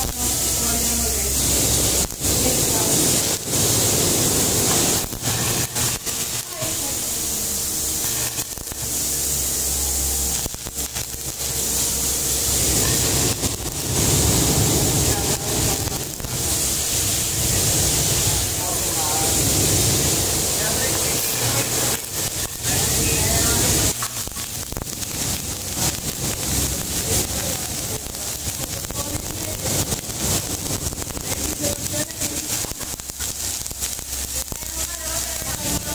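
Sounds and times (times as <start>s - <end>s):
welding arc crackling and hissing: 0.0s - 35.9s.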